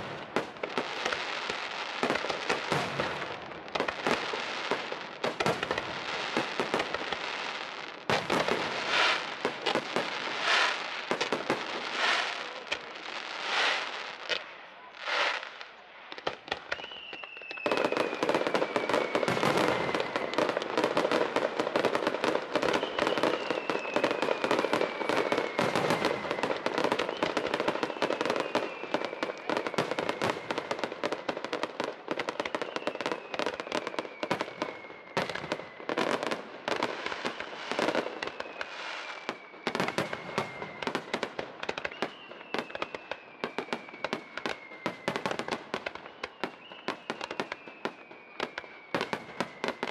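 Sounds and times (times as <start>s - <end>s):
fireworks cracking and popping: 0.0s - 49.9s
falling whistle: 16.6s - 21.3s, 22.5s - 30.8s, 32.1s - 41.1s, 41.7s - 49.9s.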